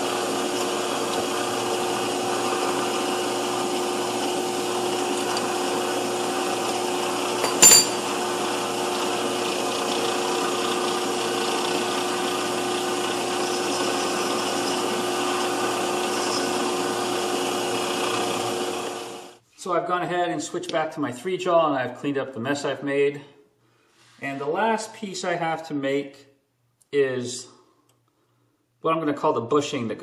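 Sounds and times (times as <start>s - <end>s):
metal lathe humming with a whine: 0.0s - 19.4s
sharp metallic clack: 7.4s - 8.0s.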